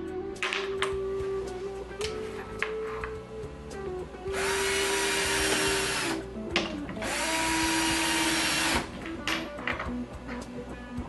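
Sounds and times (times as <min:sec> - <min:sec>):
cordless drill driving screws: 0:04.3 - 0:06.2, 0:07.0 - 0:08.9.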